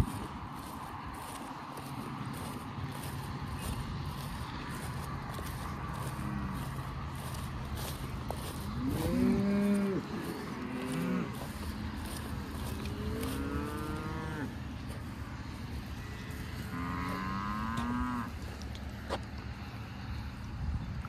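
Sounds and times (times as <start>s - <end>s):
cattle mooing: 5.4s - 7.4s, 8.6s - 14.6s, 16.0s - 18.4s.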